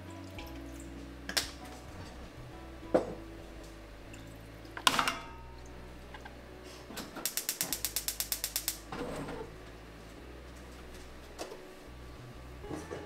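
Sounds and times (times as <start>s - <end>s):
ratchet-like mechanical clicks: 7.3s - 8.8s.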